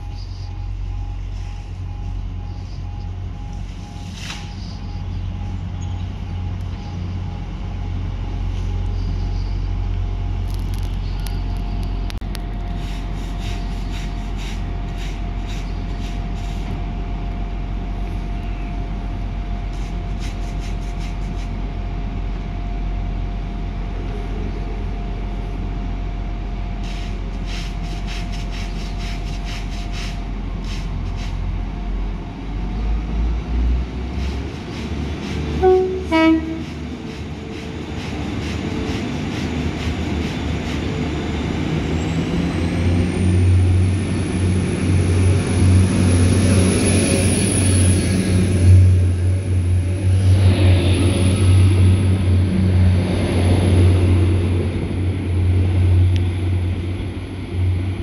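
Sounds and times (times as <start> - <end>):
diesel train idling: 0.0 - 58.0
train engines whining pulling away: 0.0 - 58.0
two-tone train horn: 35.5 - 37.0.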